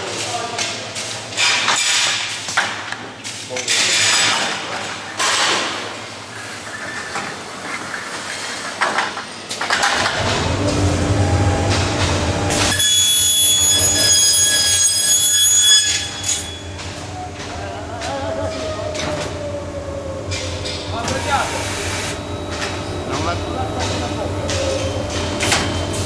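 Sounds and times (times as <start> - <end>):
high-pitched machine whine: 10.0 - 26.0.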